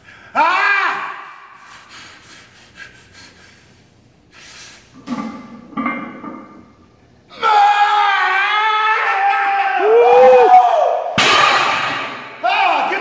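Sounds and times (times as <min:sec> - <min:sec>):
loud shout: 0:00.4 - 0:01.4, 0:07.3 - 0:11.7, 0:12.4 - 0:13.0
heavy breathing: 0:01.5 - 0:05.0.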